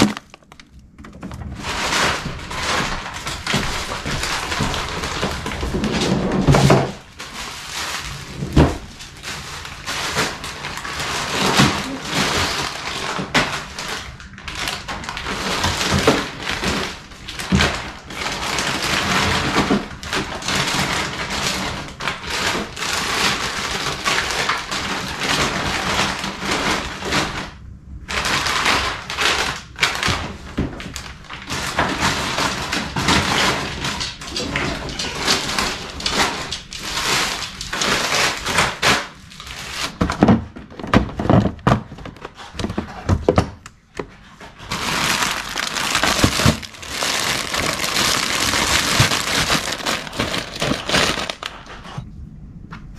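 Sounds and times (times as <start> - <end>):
frozen items thudding in wire basket: 0.0 - 0.7, 44.5 - 51.8
plastic packaging rustling: 0.0 - 52.0.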